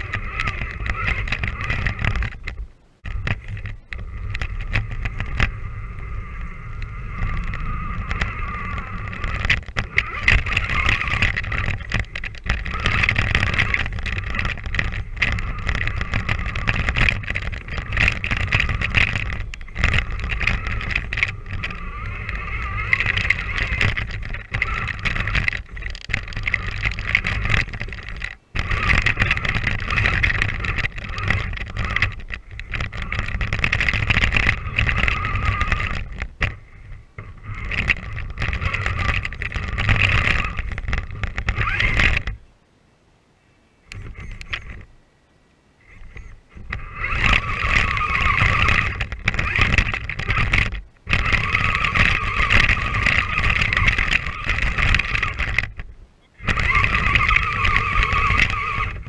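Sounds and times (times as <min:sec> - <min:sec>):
electric motor whining: 0:00.0 - 0:42.4, 0:45.8 - 0:55.8, 0:56.4 - 0:59.0
knocks of toy truck bouncing: 0:07.2 - 0:36.6, 0:37.3 - 0:42.4, 0:46.6 - 0:59.0.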